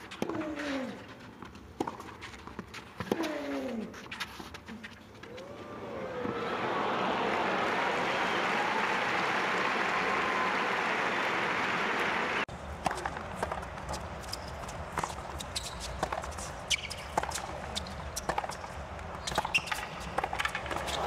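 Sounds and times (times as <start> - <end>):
crowd noise: 5.2 - 15.4
racket striking tennis ball: 12.8 - 21.0
shoes squeaking on court: 12.8 - 21.0.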